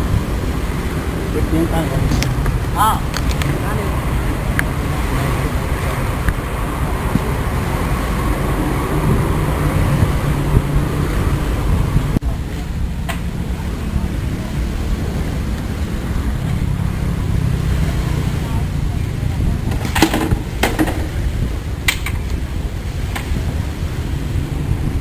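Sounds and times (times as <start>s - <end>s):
road traffic rumble: 0.0s - 25.0s
faint voices: 12.0s - 21.7s.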